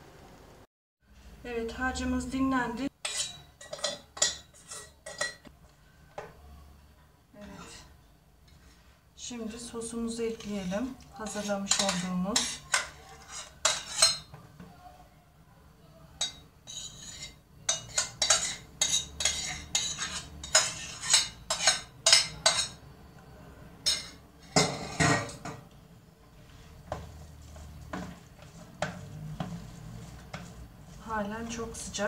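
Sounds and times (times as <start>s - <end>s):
metal spoon scraping saucepan: 3.0s - 5.5s, 7.4s - 7.9s, 10.1s - 14.3s, 16.2s - 22.8s.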